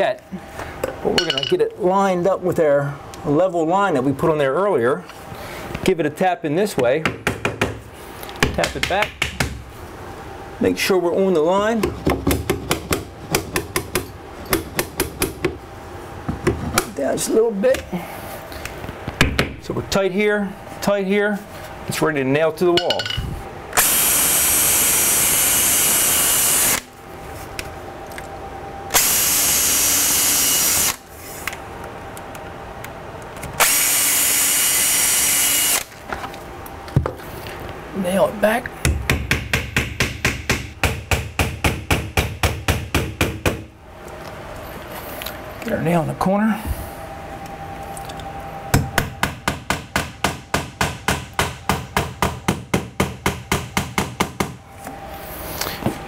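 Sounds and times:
cordless drill boring into wood: 23.8s - 26.8s, 29.0s - 31.0s, 33.6s - 35.9s.

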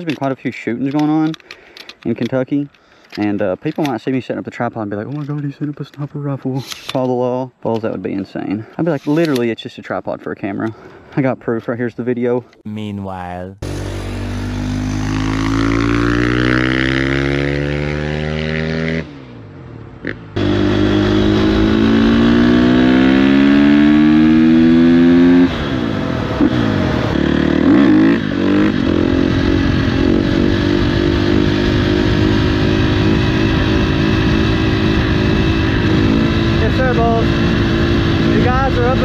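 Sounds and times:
dirt bike engine revving: 13.6s - 19.3s, 20.0s - 39.0s.

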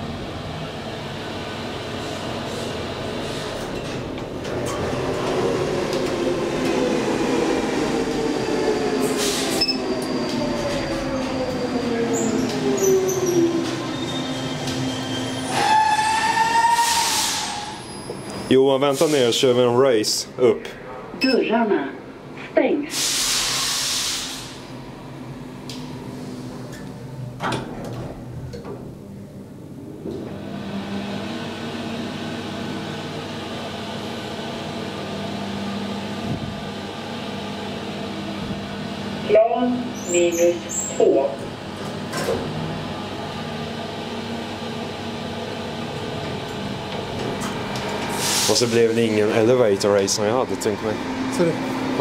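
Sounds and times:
elevator doors sliding shut: 2.5s - 19.3s, 26.6s - 29.0s
hiss burst: 22.9s - 24.6s.

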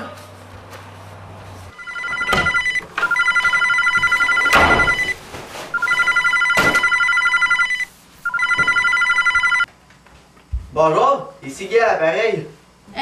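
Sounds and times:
warbling telephone ring: 1.8s - 5.2s, 5.8s - 9.7s.

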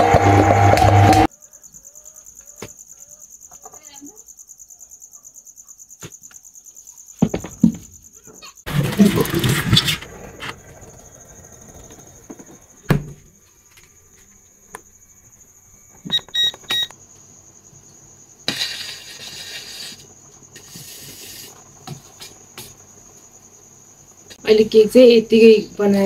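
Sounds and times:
scraping noise: 8.7s - 12.8s
thud: 8.7s - 13.3s
digital timer beeping: 16.1s - 16.9s.

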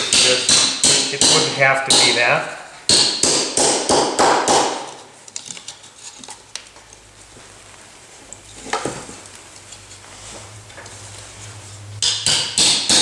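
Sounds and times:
hammer striking tin plate: 0.0s - 2.2s, 12.0s - 13.0s.

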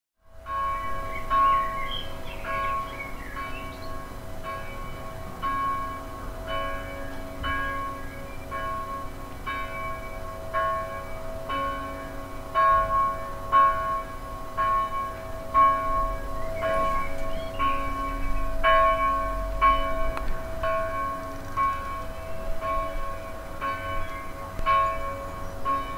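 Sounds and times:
church bells ringing: 0.2s - 25.9s.

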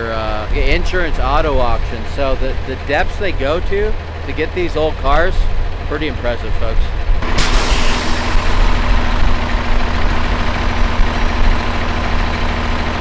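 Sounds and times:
diesel truck engine running: 0.0s - 13.0s
brief hiss: 7.4s - 8.7s.

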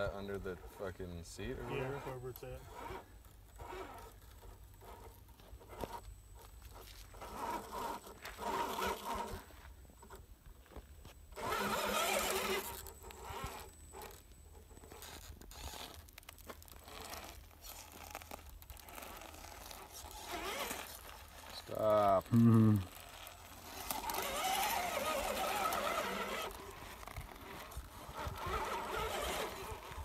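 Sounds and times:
tires scraping over ground: 0.0s - 30.0s
toy car motor whirring: 0.2s - 10.2s, 11.3s - 30.0s
grinding burst: 11.4s - 14.1s.

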